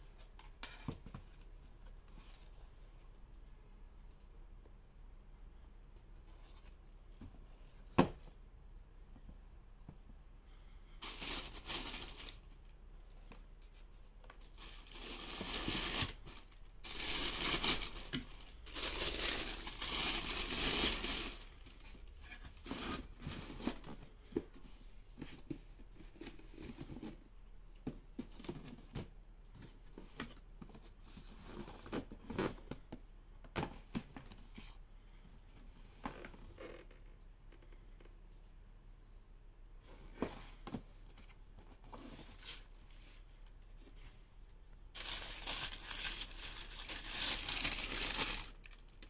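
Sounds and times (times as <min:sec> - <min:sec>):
tissue paper rustling: 0:11.0 - 0:12.4, 0:14.5 - 0:22.0, 0:44.9 - 0:49.0.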